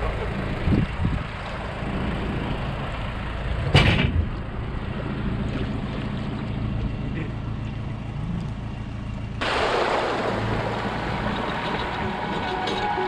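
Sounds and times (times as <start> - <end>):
truck engine idling: 0.0 - 13.0
boat thudding into water: 9.4 - 13.0.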